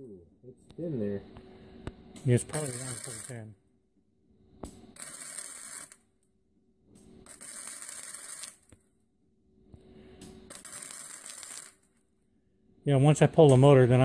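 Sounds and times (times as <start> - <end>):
welding arc crackling: 2.2 - 3.5, 4.6 - 6.1, 7.2 - 8.8, 10.5 - 12.0.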